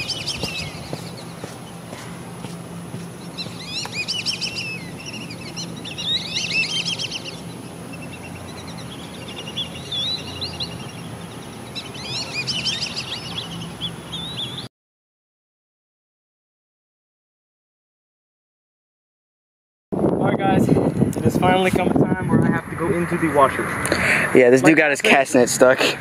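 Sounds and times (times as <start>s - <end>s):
small birds chirping: 0.0s - 14.7s
steady low hum: 0.0s - 14.7s.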